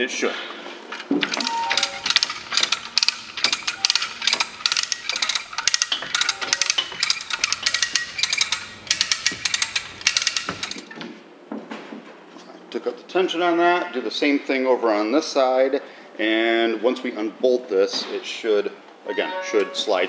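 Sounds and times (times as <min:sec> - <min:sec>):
come-along ratchet clicking: 0:01.2 - 0:10.9.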